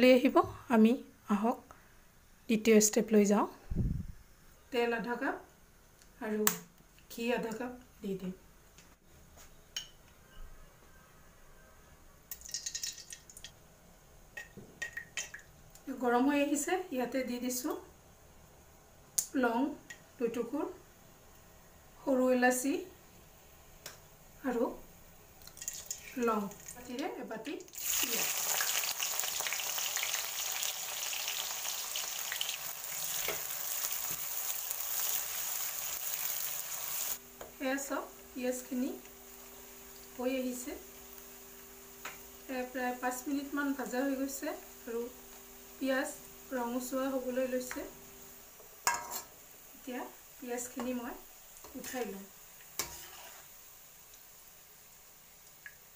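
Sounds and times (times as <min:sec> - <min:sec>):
onions sizzling in hot oil: 0:25.4 - 0:27.1, 0:27.7 - 0:55.9
spoon scraping steel pot: 0:52.8 - 0:53.5.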